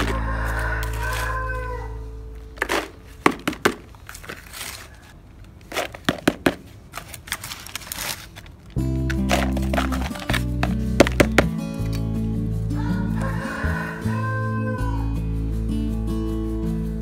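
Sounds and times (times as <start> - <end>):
background music: 0.0 - 3.3, 8.8 - 17.0
clicks and crinkles of handling: 0.0 - 12.1.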